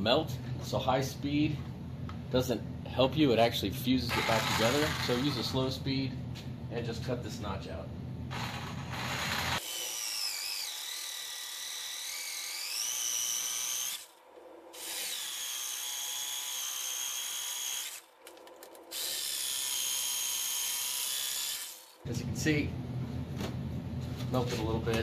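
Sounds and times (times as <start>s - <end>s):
jigsaw cutting plastic: 4.1s - 5.6s, 8.3s - 14.1s, 14.8s - 22.0s.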